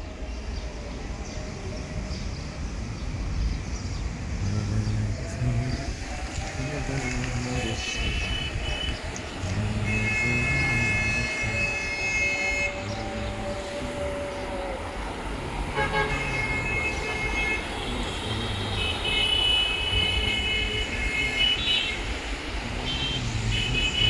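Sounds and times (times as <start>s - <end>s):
traffic engines rumbling: 0.0s - 24.0s
vehicle horns honking: 7.6s - 13.8s, 15.7s - 24.0s.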